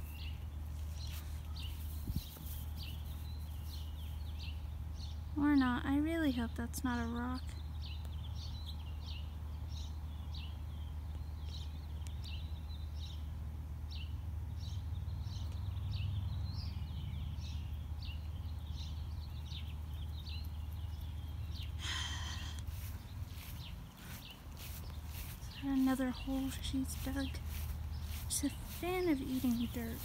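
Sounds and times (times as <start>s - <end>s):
rustle: 0.0s - 5.2s, 17.4s - 30.0s
small birds chirping: 0.0s - 30.0s
steady low rumble: 19.1s - 30.0s.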